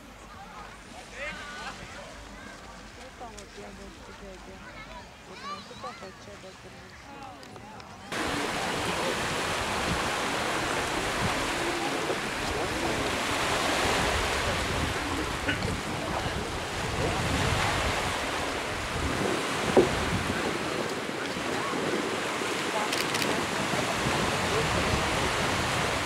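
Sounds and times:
waves washing on beach: 8.1 - 26.0
wind rumbling on microphone: 8.2 - 26.0.

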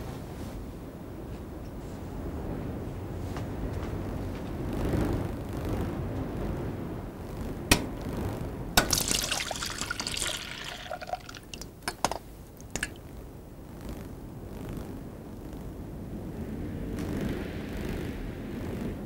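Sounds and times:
water splashing: 8.8 - 11.8, 12.6 - 13.0.

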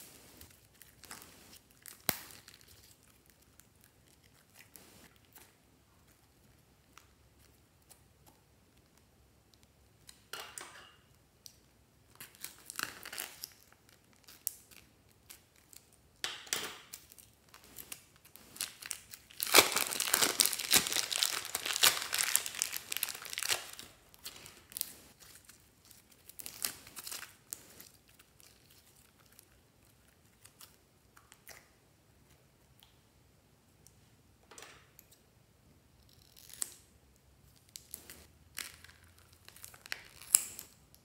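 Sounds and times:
plastic bags crinkling: 17.5 - 27.4.

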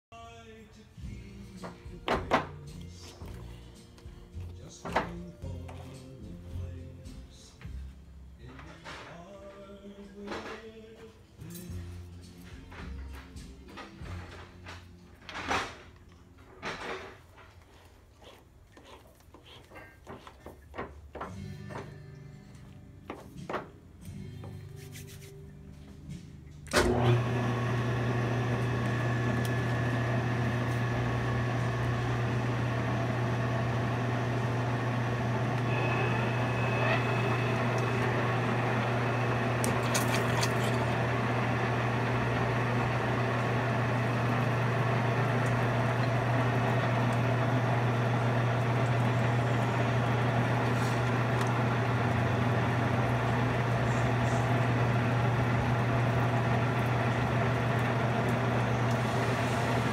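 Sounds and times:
metal lathe humming: 26.7 - 59.9
coolant splashing: 39.6 - 41.1.

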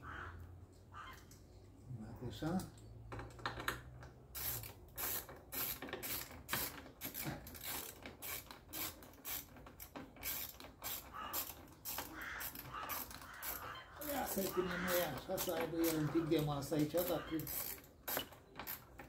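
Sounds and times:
ratchet wrench clicking: 4.3 - 13.6, 14.3 - 16.0, 16.8 - 19.0.

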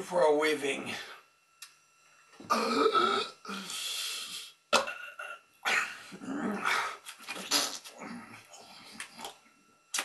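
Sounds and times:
man gurgling while eating: 2.5 - 3.6, 4.7 - 8.5.

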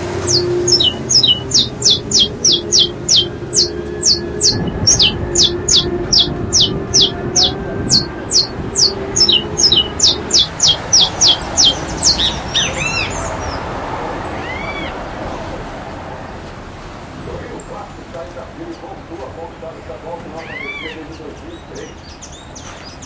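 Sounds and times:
bird high thin falling notes: 0.0 - 13.2
bird short chirps: 0.2 - 13.1.

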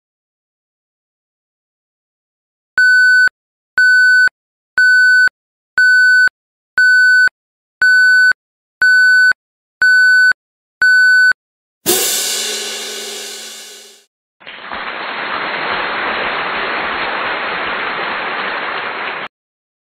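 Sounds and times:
electronic countdown beeps: 2.8 - 11.4
cymbal crash: 11.9 - 14.0.

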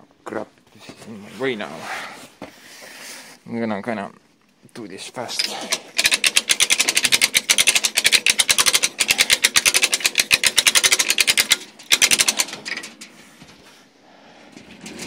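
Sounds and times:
rapid ratcheting clicks: 5.6 - 13.1.

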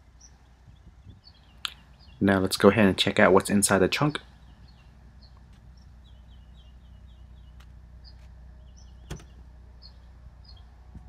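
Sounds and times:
birds chirping: 0.0 - 11.0
liftgate motor running: 4.4 - 11.0
liftgate latch click: 9.0 - 9.4.

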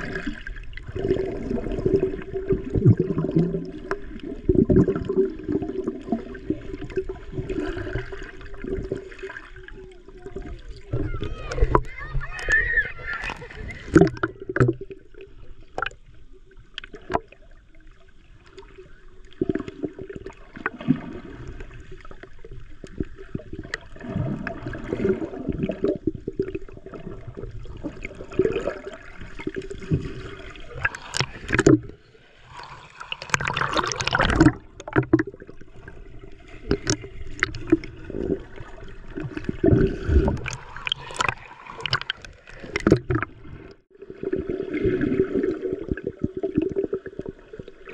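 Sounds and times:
underwater gurgling and sloshing: 0.0 - 47.9
underwater knocks: 13.9 - 15.0, 31.1 - 31.9, 34.0 - 35.5, 36.6 - 37.9, 39.3 - 43.4.

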